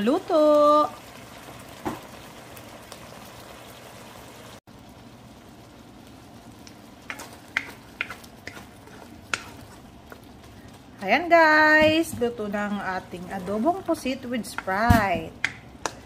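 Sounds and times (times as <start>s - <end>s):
sauce bubbling in a wok: 0.0s - 16.0s
spatula scraping the pan: 7.0s - 10.8s
wooden spatula knocking on pan: 7.5s - 8.6s, 11.7s - 12.5s, 14.4s - 16.0s.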